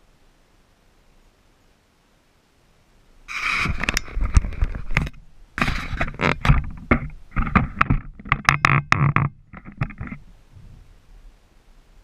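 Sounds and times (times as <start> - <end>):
camera being handled and bumped: 3.4 - 10.2.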